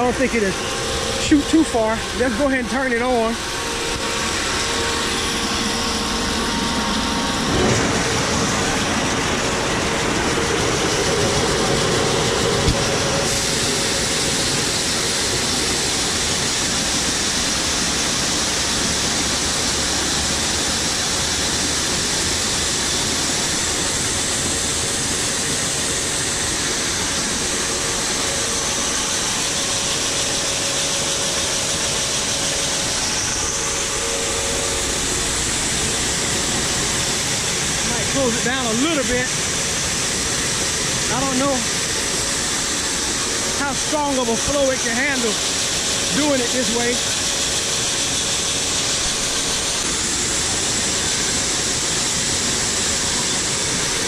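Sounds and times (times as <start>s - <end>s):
electric grain auger running: 0.0s - 54.0s
corn pouring with a hiss: 11.0s - 54.0s.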